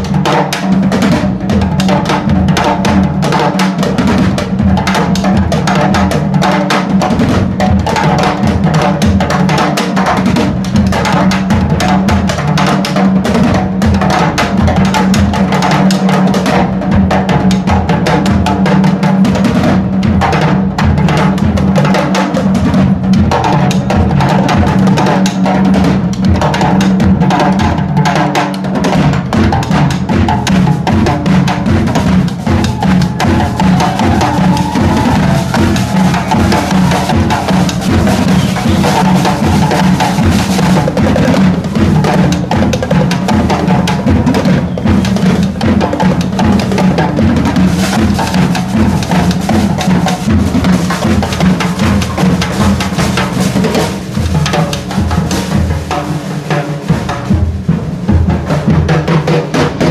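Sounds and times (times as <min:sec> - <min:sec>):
drummers playing fast pattern: 0:00.0 - 0:59.9.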